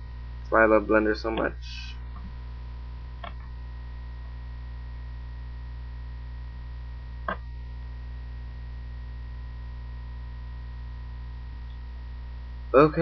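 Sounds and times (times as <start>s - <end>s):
electrical mains hum: 0.0s - 13.0s
clicks: 1.3s - 2.4s, 3.2s - 3.5s, 7.2s - 7.5s.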